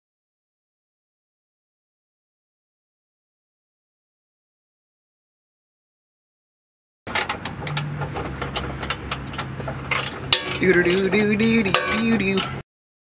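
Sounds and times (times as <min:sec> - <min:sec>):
metallic clicks and knocks: 0:07.1 - 0:12.6
steady low hum: 0:07.1 - 0:12.6.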